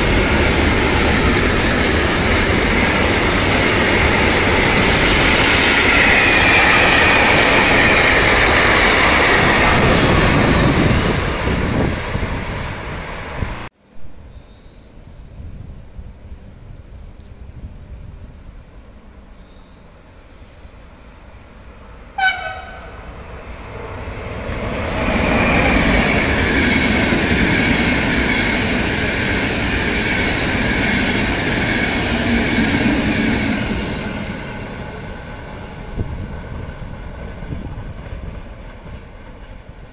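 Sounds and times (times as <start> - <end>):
train passing rumble: 0.0 - 13.7, 20.2 - 39.9
train horn blast: 22.2 - 23.2.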